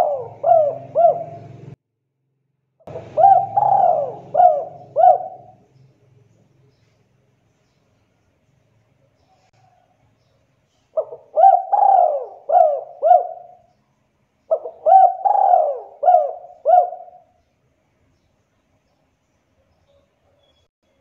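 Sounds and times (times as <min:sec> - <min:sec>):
dove cooing: 0:00.0 - 0:01.8, 0:02.9 - 0:05.6, 0:11.0 - 0:13.7, 0:14.5 - 0:17.4.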